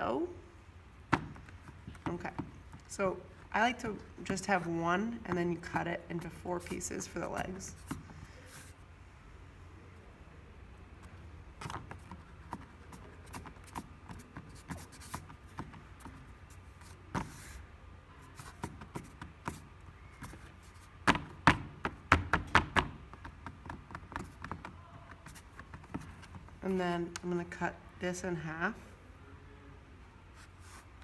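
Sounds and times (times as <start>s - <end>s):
clay rubbing on a board: 4.3s - 8.8s, 11.0s - 26.6s, 30.4s - 31.0s.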